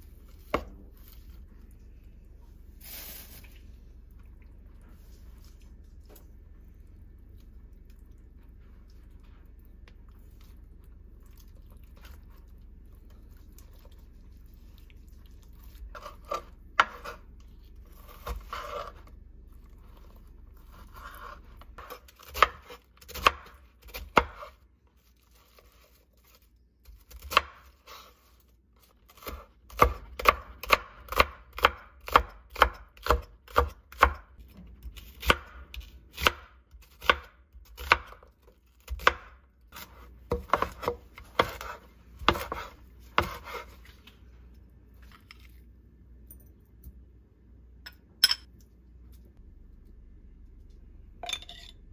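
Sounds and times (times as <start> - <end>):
knife chopping on wooden board: 29.1 - 34.2, 38.8 - 43.7.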